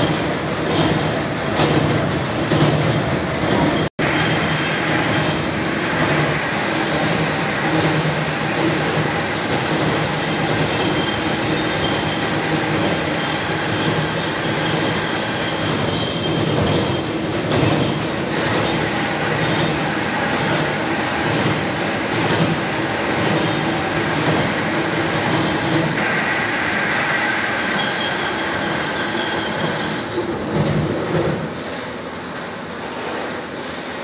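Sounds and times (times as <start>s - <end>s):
milling machine whirring: 0.0s - 33.7s
high squealing of metal cutting: 3.4s - 30.2s.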